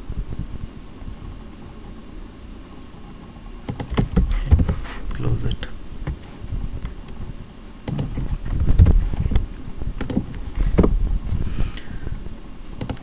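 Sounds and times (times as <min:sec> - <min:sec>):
keyboard key clicks: 0:03.7 - 0:04.3, 0:12.8 - 0:13.0
low thuds: 0:03.9 - 0:05.2, 0:06.0 - 0:12.3.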